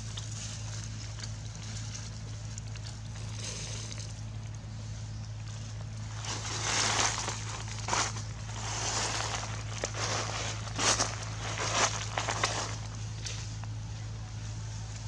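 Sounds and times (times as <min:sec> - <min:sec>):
dry leaves rustling underfoot: 0:00.0 - 0:15.0
low hum: 0:00.0 - 0:15.0.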